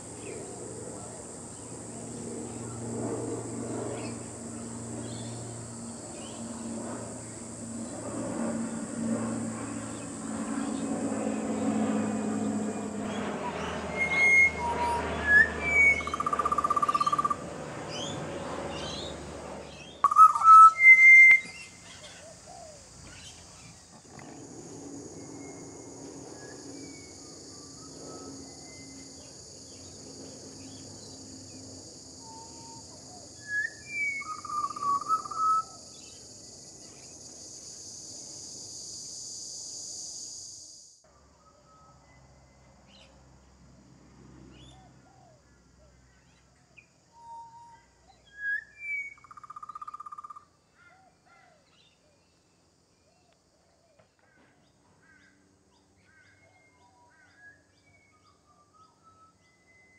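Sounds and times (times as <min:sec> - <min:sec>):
birds whistling song: 0:13.1 - 0:18.2, 0:18.8 - 0:23.8, 0:32.2 - 0:36.2, 0:46.3 - 0:50.4, 0:55.7 - 0:59.9.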